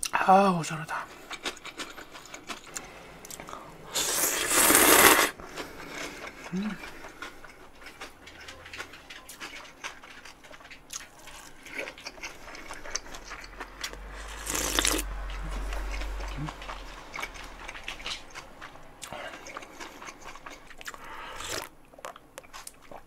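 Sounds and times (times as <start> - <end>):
wet chewing clicks: 1.2 - 3.6, 4.6 - 23.0
slurping noodles: 3.9 - 7.1, 14.2 - 18.4.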